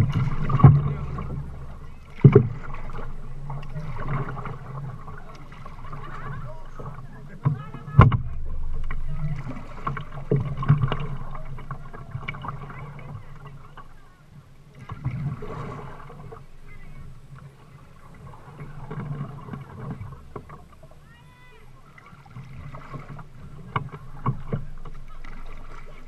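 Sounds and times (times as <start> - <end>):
water sloshing around kayak: 0.0 - 26.0
knocks on kayak: 7.4 - 9.0.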